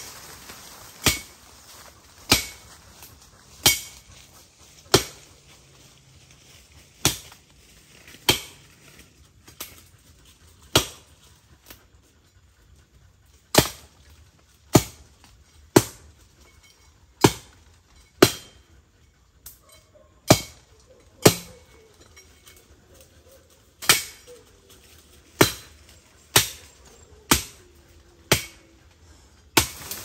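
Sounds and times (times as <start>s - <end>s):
blade chopping green wood: 10.7s - 11.0s.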